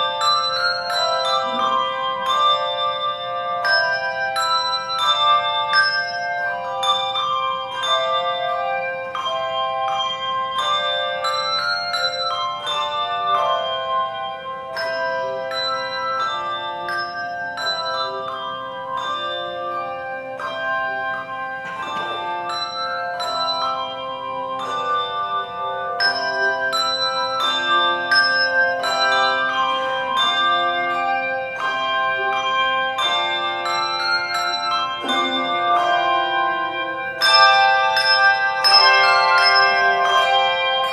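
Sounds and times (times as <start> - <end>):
handbell choir playing: 0.0 - 40.9.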